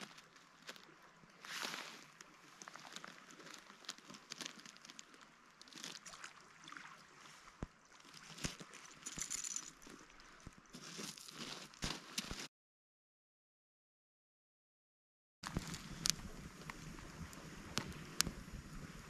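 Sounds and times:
small clicks and crunches: 1.5 - 6.2, 8.0 - 12.5.

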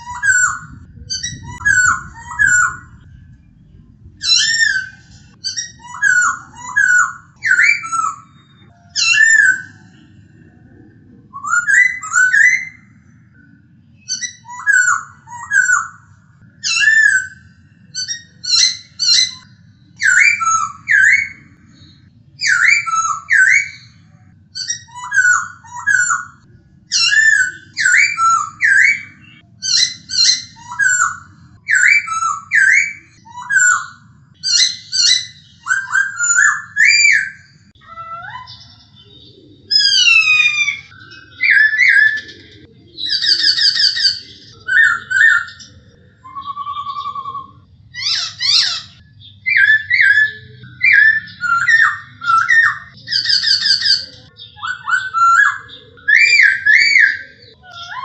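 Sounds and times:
bird singing whistled phrases: 0.0 - 3.4, 4.2 - 10.4, 11.3 - 58.0
faint low hum: 0.0 - 32.4.

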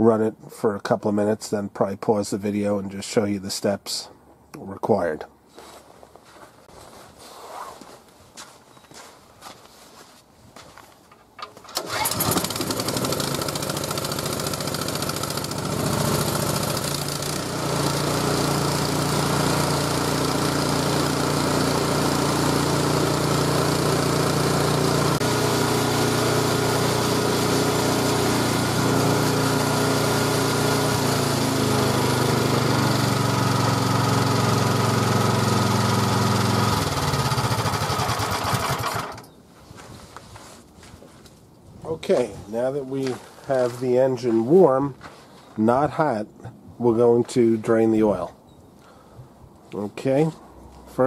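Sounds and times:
snowblower engine starting and running: 11.4 - 39.3.

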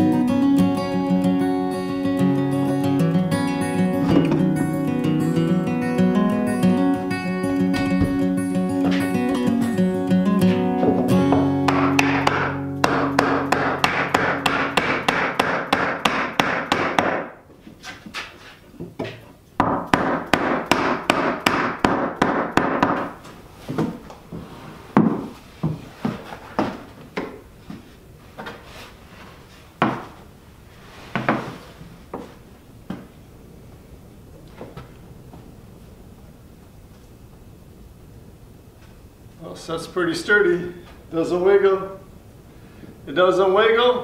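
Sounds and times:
hammer knocking on wooden block: 10.9 - 17.3, 19.6 - 23.1.

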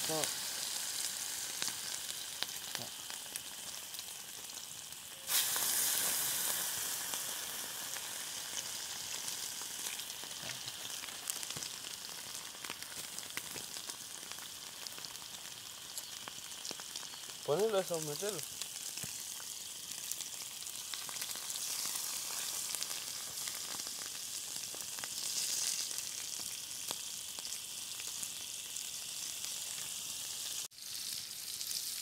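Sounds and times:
fat sizzling in a frying pan: 0.0 - 32.0.

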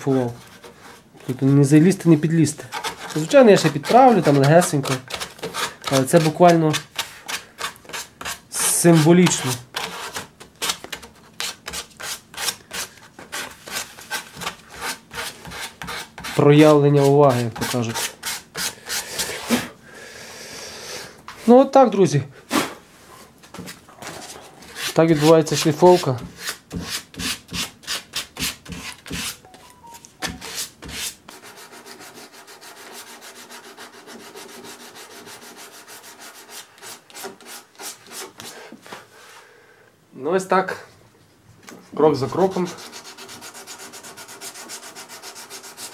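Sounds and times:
sandpaper rasping on wood: 2.7 - 10.2, 24.7 - 29.4, 30.4 - 38.5, 42.3 - 45.9
sandpaper rubbing on wood: 30.4 - 38.4, 42.3 - 45.9.

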